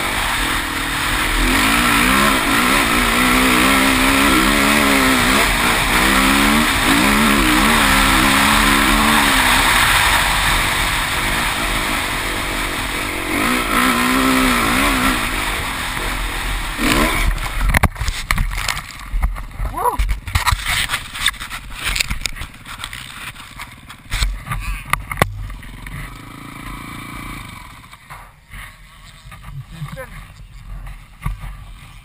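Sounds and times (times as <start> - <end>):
motorcycle engine revving: 0.0 - 18.6, 21.4 - 28.1.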